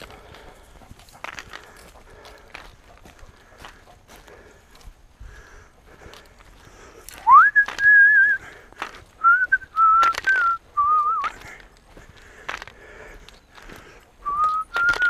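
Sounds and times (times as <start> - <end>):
person whistling: 7.2 - 8.5, 9.2 - 11.4, 14.2 - 15.0.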